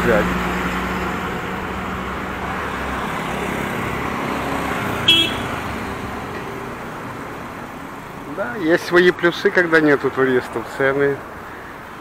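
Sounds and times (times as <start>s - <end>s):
passing traffic: 0.0s - 12.0s
short high horn toot: 5.0s - 5.5s.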